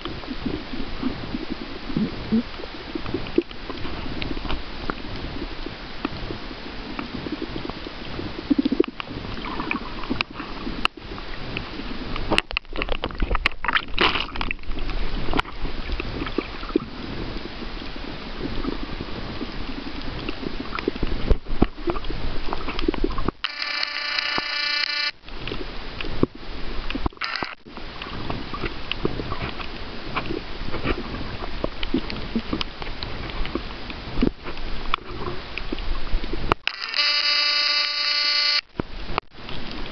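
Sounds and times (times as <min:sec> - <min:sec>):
clicks and crackles: 0:03.0 - 0:06.2, 0:07.0 - 0:16.9, 0:20.0 - 0:26.3, 0:26.9 - 0:39.9
buzzing tone: 0:23.4 - 0:25.2, 0:27.2 - 0:27.6, 0:36.6 - 0:38.7.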